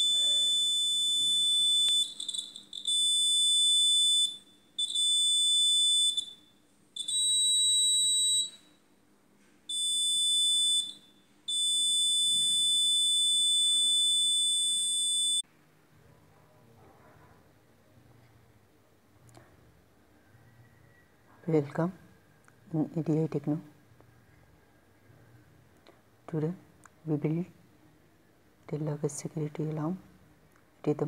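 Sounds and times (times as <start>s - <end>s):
high-pitched electronic alarm tone: 0.0s - 8.7s, 9.7s - 15.4s.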